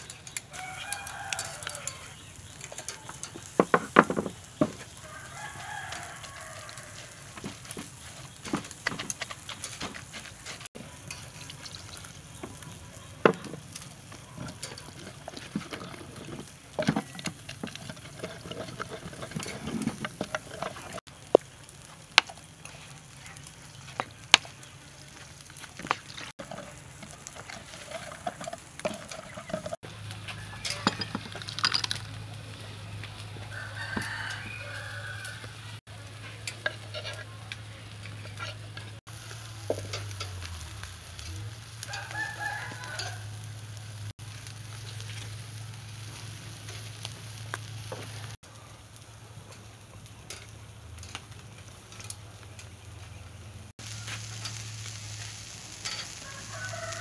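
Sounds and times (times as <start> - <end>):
rooster crowing: 0.5 - 2.2, 4.7 - 7.4, 28.9 - 31.2, 33.4 - 35.8, 41.8 - 43.8, 56.0 - 57.0
pestle scraping in wooden mortar: 14.2 - 21.0, 25.7 - 29.8.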